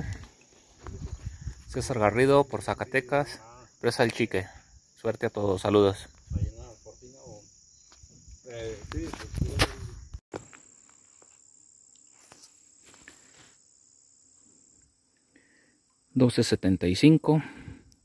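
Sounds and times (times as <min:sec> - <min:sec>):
crickets trilling: 0:00.0 - 0:18.0
voice: 0:01.7 - 0:07.4, 0:08.4 - 0:10.0, 0:16.2 - 0:17.5.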